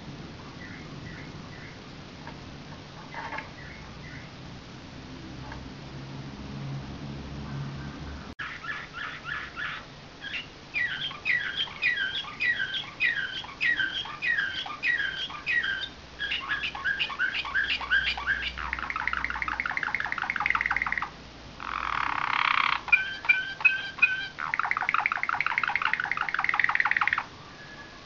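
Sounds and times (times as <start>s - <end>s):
canary singing: 0.4s - 1.9s, 3.1s - 4.4s, 7.5s - 28.0s.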